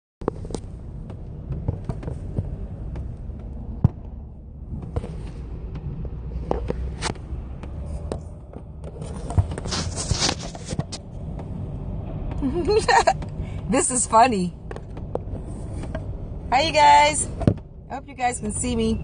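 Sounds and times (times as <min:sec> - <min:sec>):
car cabin rumble: 0:00.2 - 0:19.0
scraping and rustling: 0:06.3 - 0:11.1.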